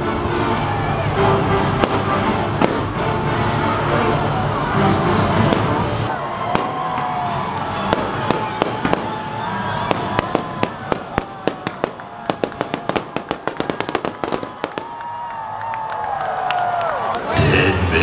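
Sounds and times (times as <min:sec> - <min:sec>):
fireworks cracking and banging: 0:01.6 - 0:03.2, 0:05.4 - 0:15.4.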